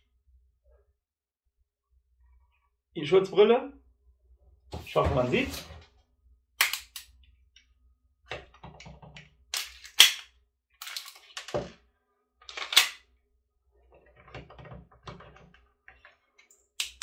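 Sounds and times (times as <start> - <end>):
gun handling clicks and clatter: 6.6 - 7.2, 8.3 - 11.8, 12.4 - 13.1, 14.0 - 17.0.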